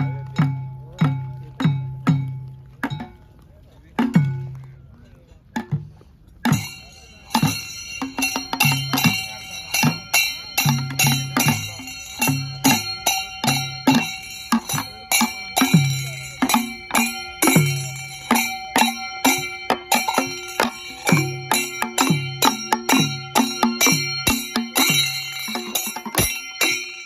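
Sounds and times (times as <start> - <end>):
low drum beat: 0.0 - 27.0
ringing metallic strikes: 5.6 - 27.0.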